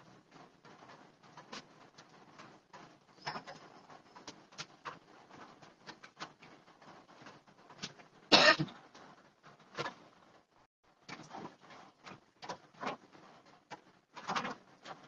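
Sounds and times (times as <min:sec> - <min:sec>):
person coughing: 0:08.3 - 0:08.7.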